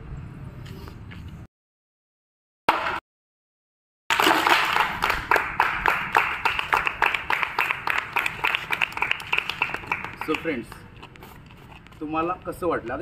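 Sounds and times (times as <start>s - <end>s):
people clapping: 4.1s - 10.8s.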